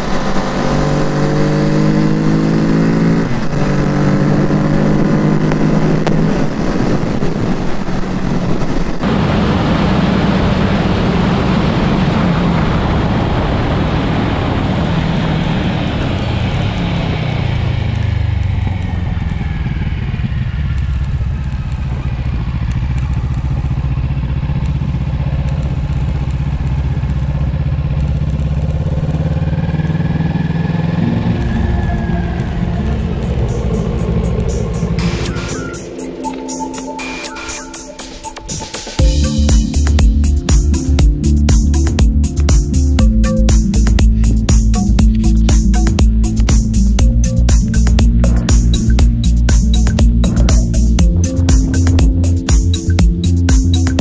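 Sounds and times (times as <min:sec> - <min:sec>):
motorcycle engine: 0:00.0 - 0:09.2, 0:10.4 - 0:54.0
wind rushing: 0:00.0 - 0:16.0, 0:30.7 - 0:39.2, 0:44.0 - 0:52.9.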